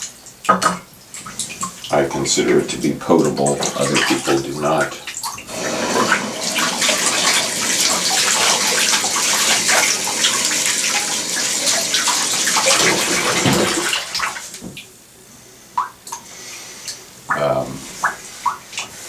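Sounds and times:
water running from faucet: 1.2 - 14.8.

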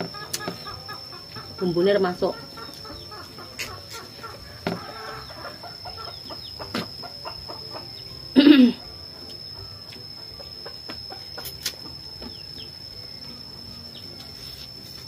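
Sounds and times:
chickens clucking: 0.0 - 8.1, 9.3 - 12.7.

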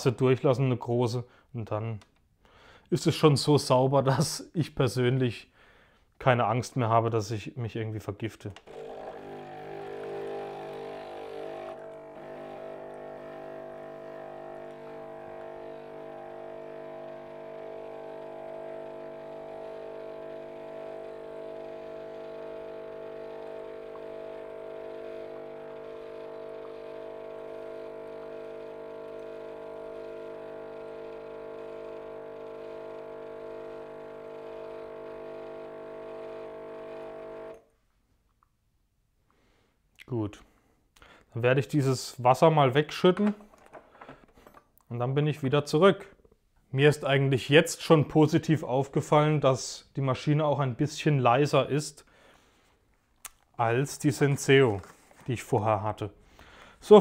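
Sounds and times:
coffee machine pump humming: 8.6 - 37.6.

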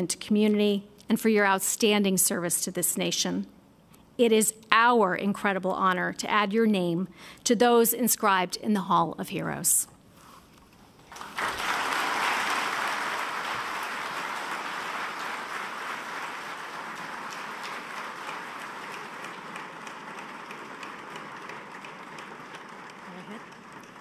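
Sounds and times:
audience applauding: 11.0 - 24.0.

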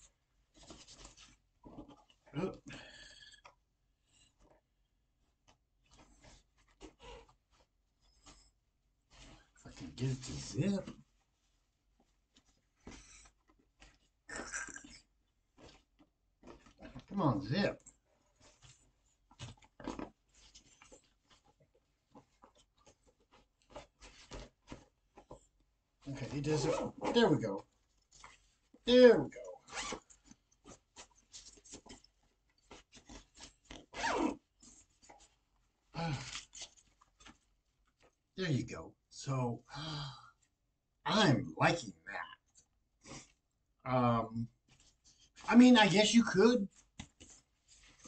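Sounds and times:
zipper rasps: 26.6 - 27.2, 29.4 - 30.2, 33.1 - 34.5.

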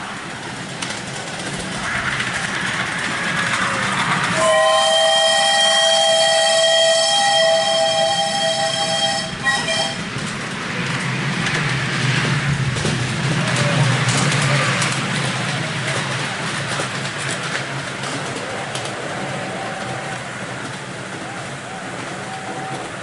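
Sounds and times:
steam hissing: 0.0 - 9.9
miniature train running past: 0.0 - 23.0
steam whistle chord: 4.3 - 10.0.

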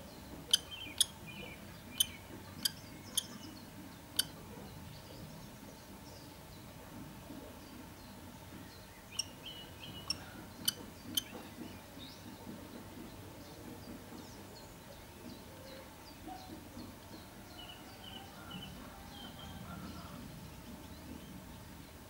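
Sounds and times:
low background noise: 0.0 - 22.0
faint high bird chirps: 0.5 - 3.6.

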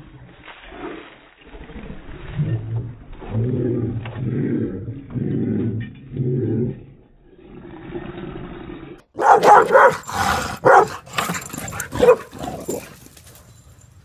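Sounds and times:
dog growling: 3.2 - 13.0
dog barking and yipping: 9.2 - 13.2.

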